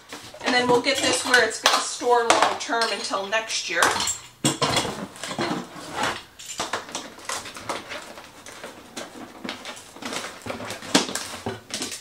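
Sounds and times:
cardboard box rustling and scraping: 4.9s - 11.7s.

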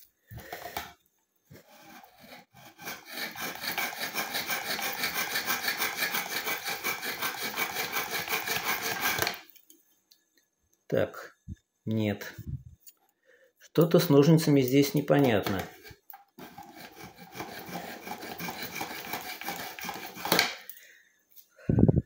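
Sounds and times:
scissors rasping in sharpener: 1.9s - 9.5s, 15.2s - 20.6s.

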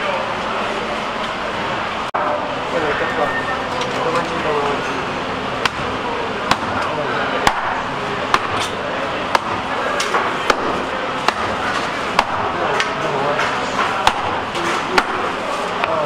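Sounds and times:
chopping on cutting board: 9.3s - 9.6s, 10.4s - 11.6s, 15.0s - 15.2s.

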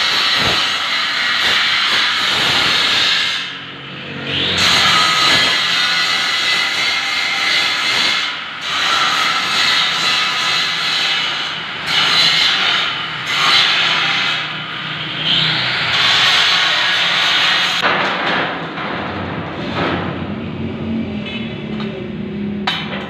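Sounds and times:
angle grinder grinding steel: 0.0s - 17.8s.

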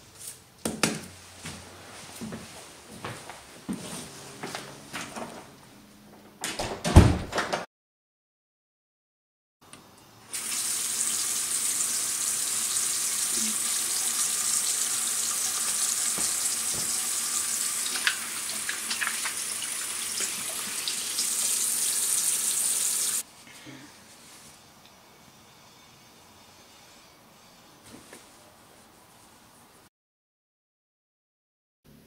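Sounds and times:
water running from faucet into sink: 10.3s - 23.2s
hands washing under water: 15.4s - 22.3s.

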